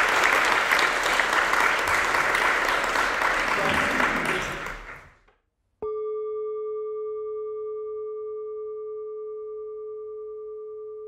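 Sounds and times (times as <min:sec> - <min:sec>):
applause: 0:00.0 - 0:05.3.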